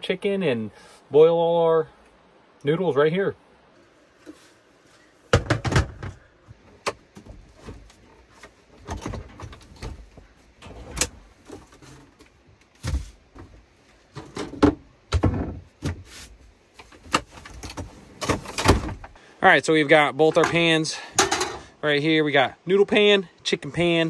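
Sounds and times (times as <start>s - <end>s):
camping gear knocking and rattling: 5.3s - 10.3s.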